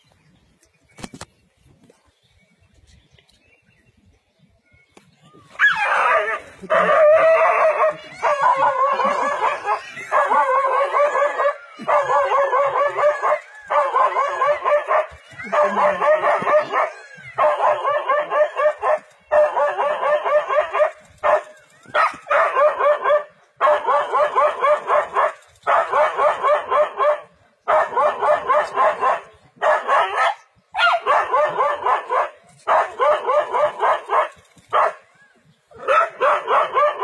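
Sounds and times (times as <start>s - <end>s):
dog barking: 11.1s - 35.0s, 35.8s - 37.0s.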